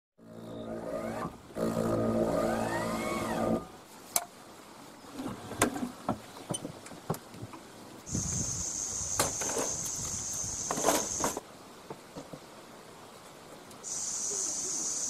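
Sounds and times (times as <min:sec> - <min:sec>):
electric motor whirring: 0:00.4 - 0:03.7
steady high hiss: 0:05.9 - 0:15.0.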